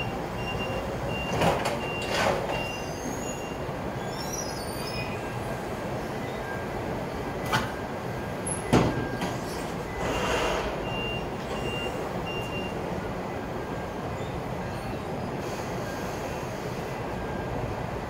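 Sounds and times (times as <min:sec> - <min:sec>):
reversing alarm beeps: 0:00.0 - 0:03.7, 0:06.2 - 0:14.0, 0:15.8 - 0:16.5, 0:17.1 - 0:17.8.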